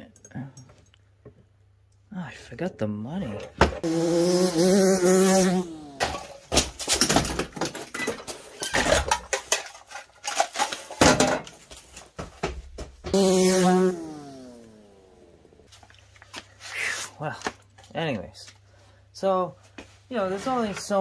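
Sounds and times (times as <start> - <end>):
dirt bike engine passing: 3.8 - 6.0, 13.1 - 15.6.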